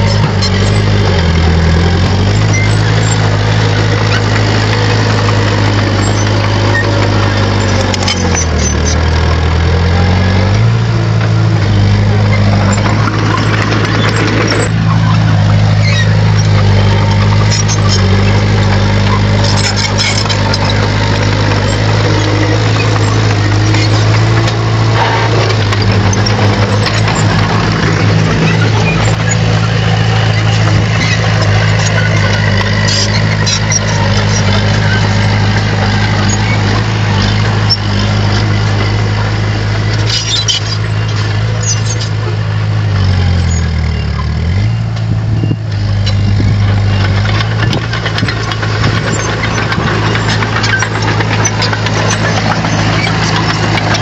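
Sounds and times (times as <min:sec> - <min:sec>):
bulldozer diesel engine running: 0:00.0 - 0:54.0.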